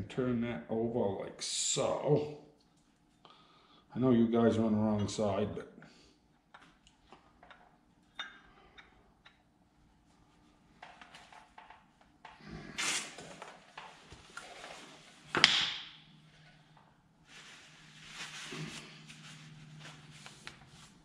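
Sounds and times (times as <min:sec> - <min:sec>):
scraping rustle: 0:17.3 - 0:21.0.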